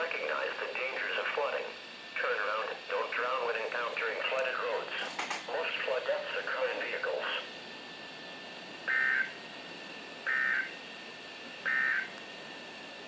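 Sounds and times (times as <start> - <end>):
buzzy digital data bursts: 8.8 - 9.4, 10.2 - 10.7, 11.6 - 12.1.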